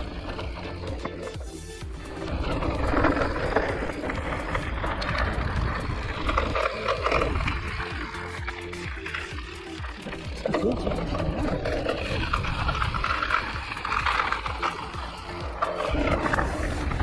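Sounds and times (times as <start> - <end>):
bike clicks and rattles: 0.0 - 17.0
tyres rumbling over ground: 0.0 - 17.0.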